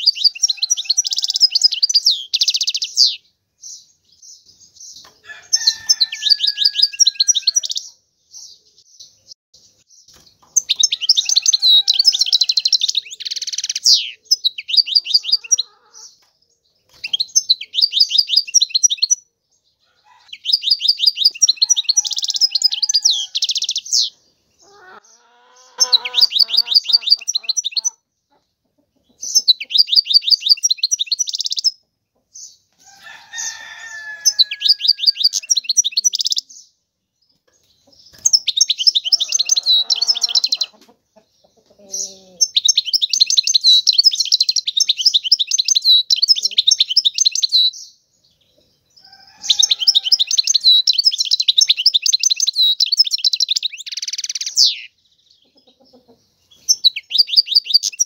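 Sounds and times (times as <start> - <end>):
goldfinch twittering song: 9.9 - 16.2, 16.8 - 19.2, 20.3 - 24.7, 37.6 - 40.7, 41.4 - 48.0, 49.3 - 58.0
faint lower bird calls: 9.9 - 16.3, 16.9 - 31.8, 41.5 - 47.9.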